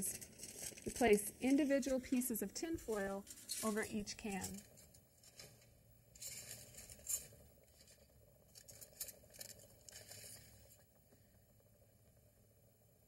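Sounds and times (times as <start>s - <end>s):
aluminium foil crinkling: 0.0s - 10.8s.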